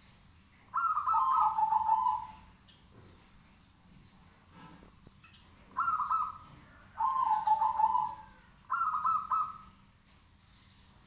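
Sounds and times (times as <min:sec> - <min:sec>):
dove cooing: 0:00.7 - 0:02.5, 0:05.7 - 0:09.7.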